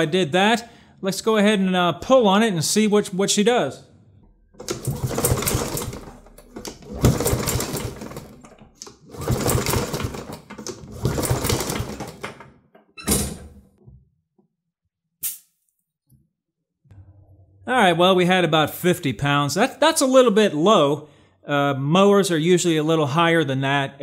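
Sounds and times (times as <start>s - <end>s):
engine cranked by pull-cord starter: 4.6s - 12.4s.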